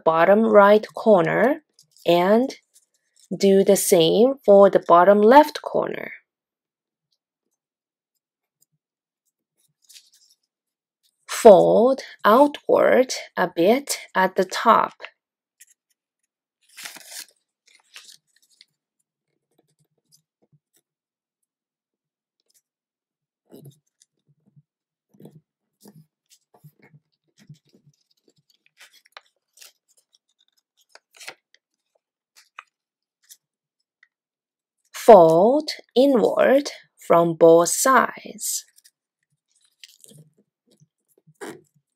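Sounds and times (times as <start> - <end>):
paper rustling while folded: 9.5 - 11.2, 15.6 - 20.9, 25.8 - 33.6, 38.6 - 41.9.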